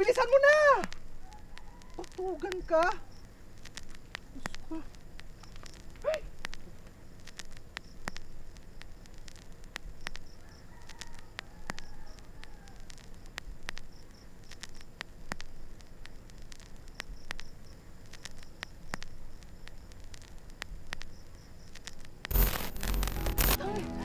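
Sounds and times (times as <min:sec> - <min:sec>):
insect chirps: 0:00.0 - 0:23.6
soft clicks: 0:00.4 - 0:23.6
loud burst of noise: 0:22.3 - 0:23.6.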